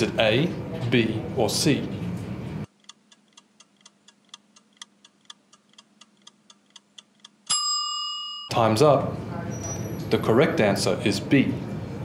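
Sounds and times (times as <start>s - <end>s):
fast clock ticking: 2.7s - 7.5s
bell-like ding: 7.5s - 8.5s.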